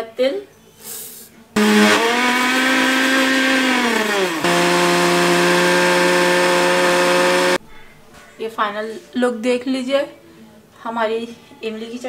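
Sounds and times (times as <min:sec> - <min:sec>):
blender motor grinding paste: 0:01.6 - 0:07.6.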